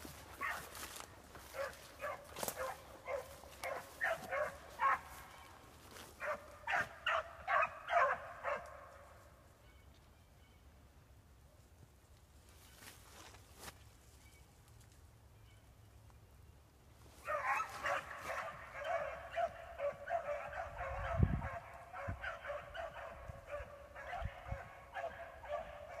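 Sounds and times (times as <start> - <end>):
dogs baying: 0.3 - 5.3, 6.2 - 8.8, 17.2 - 26.0.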